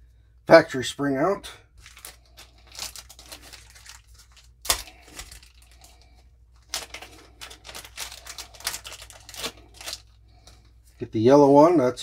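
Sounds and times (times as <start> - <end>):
packaging rustling and crinkling: 1.7 - 10.6.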